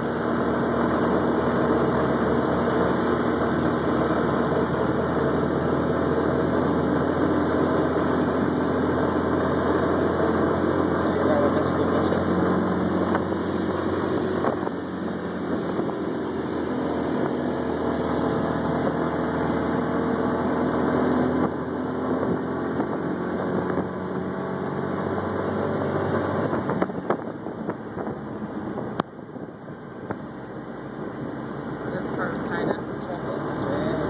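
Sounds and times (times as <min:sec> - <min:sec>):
small engine running: 0:00.0 - 0:27.3, 0:30.9 - 0:34.0
wind on microphone: 0:26.0 - 0:31.7.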